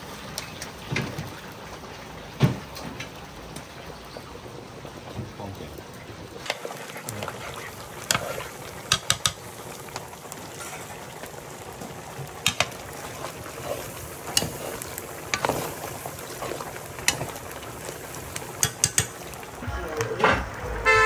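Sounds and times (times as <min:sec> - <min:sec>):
food sizzling in a pot: 0:00.0 - 0:21.0
sharp clicks and knocks: 0:08.9 - 0:09.4, 0:18.6 - 0:19.2.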